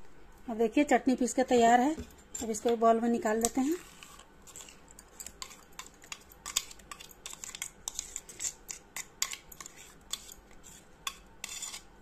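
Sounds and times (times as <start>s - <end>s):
spoon scraping steel jar: 3.5s - 11.9s.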